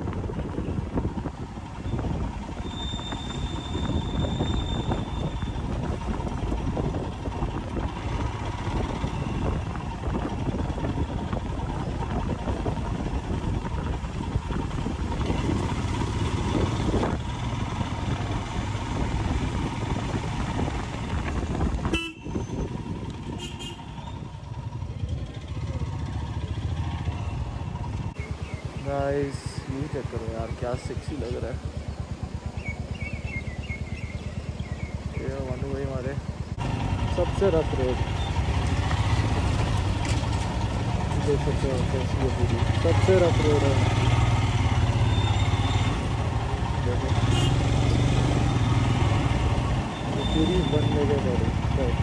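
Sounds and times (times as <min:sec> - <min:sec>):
motorcycle engine running: 0:00.0 - 0:52.0
wind and road noise: 0:00.0 - 0:52.0
motorcycle horn toots: 0:21.8 - 0:22.6, 0:23.3 - 0:24.1, 0:47.2 - 0:47.7.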